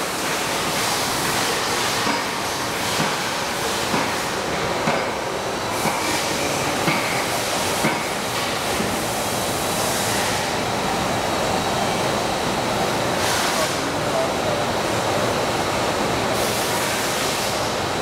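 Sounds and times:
printing machine running: 0.0s - 18.0s.

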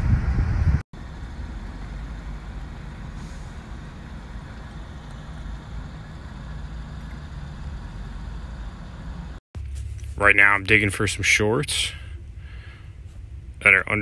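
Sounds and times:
van engine rumble from inside cab: 1.0s - 14.0s.

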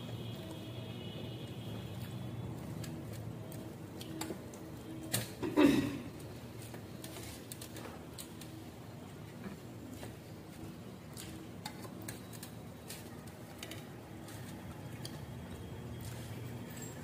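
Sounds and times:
chewing: 9.4s - 17.0s.

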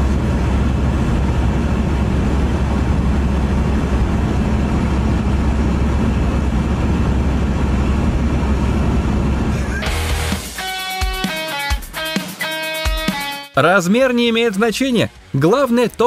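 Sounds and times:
vehicle engine running: 0.0s - 11.1s.

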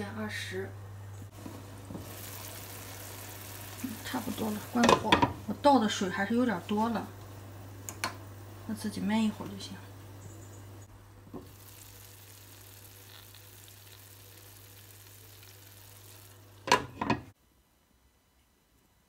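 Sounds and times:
chicken sizzling in pan: 1.3s - 6.3s, 11.3s - 17.0s.

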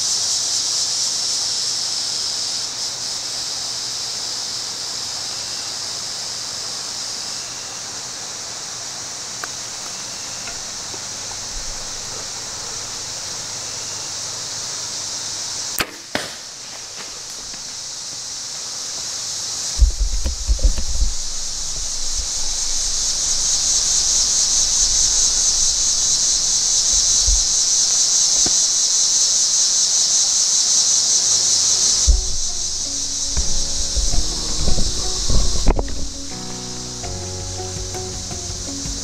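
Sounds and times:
high-pitched insect chorus: 0.0s - 39.0s
bow shot sharp cracks: 15.7s - 17.8s, 32.0s - 36.4s.

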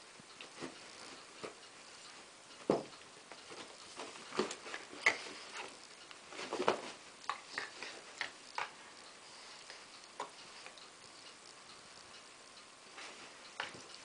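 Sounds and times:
dogs scuffling and clicking: 2.6s - 8.8s.

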